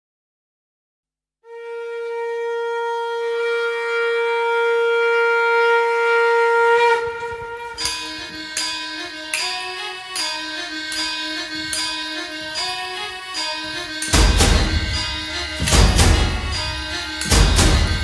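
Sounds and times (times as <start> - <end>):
conch shell long note: 1.4 - 18.0
music with drum strikes: 14.0 - 18.0.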